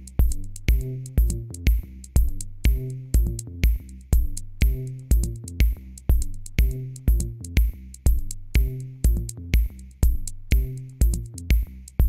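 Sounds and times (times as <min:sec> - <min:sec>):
electronic drum beat: 0:00.0 - 0:12.0
held bass line: 0:00.0 - 0:12.0.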